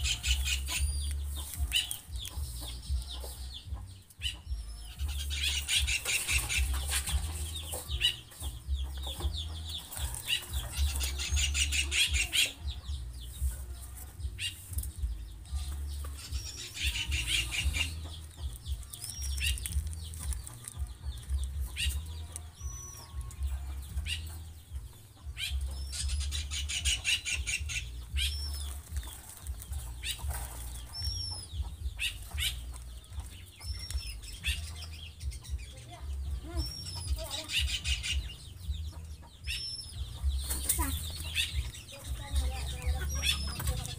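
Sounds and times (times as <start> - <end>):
doves fluttering wings: 15.7 - 22.4, 25.6 - 34.7.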